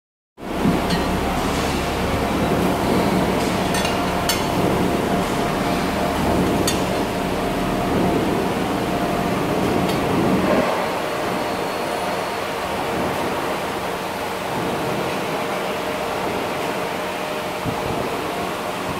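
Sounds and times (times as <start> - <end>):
factory machinery rushing: 0.4 - 18.9
low machinery hum: 0.4 - 18.9.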